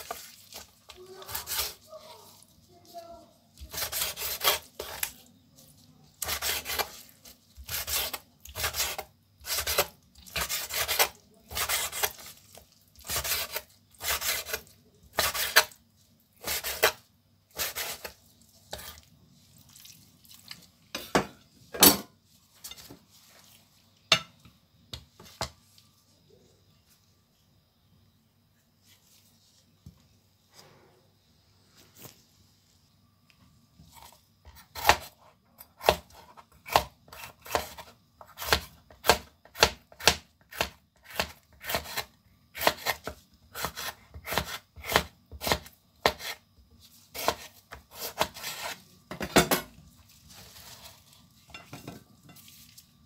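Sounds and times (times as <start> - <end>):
knife slicing on cutting board: 47.1 - 48.8.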